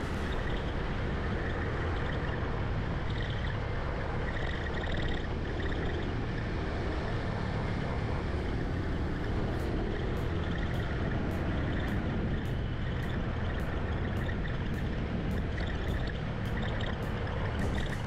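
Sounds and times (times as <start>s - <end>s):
wind rush and road noise: 0.0s - 18.0s.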